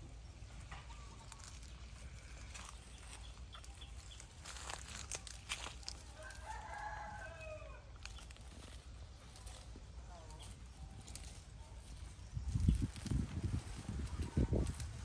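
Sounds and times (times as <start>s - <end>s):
rooster crowing: 6.0s - 7.9s.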